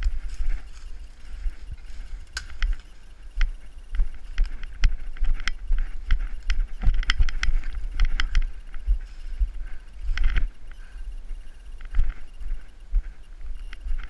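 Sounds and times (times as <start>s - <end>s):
footsteps crunching dry leaves: 0.0s - 10.2s.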